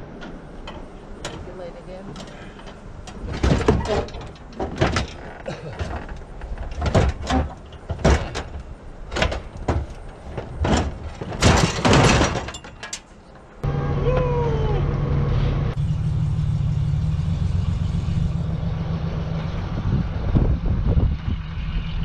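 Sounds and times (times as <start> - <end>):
metal bangs against truck bed: 3.1 - 13.0.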